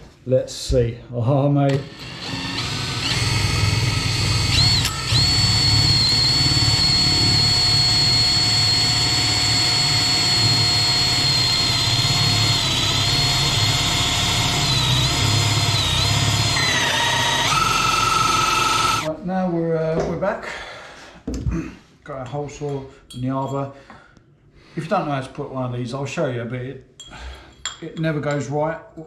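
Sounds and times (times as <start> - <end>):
power drill motor whine: 1.8 - 19.1.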